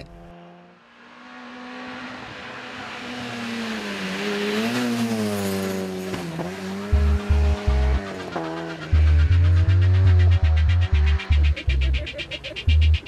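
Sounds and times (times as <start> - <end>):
rally car engine at full throttle: 0.0 - 13.0
music with heavy bass beats: 6.8 - 13.0.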